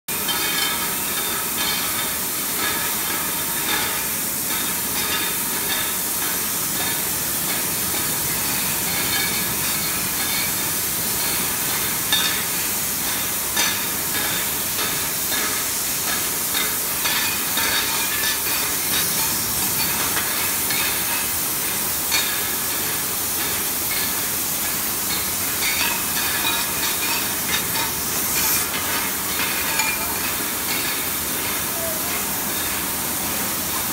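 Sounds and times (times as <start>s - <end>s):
machine clicks and clinks: 0.1s - 32.9s
gas burner flames hissing: 0.1s - 33.9s.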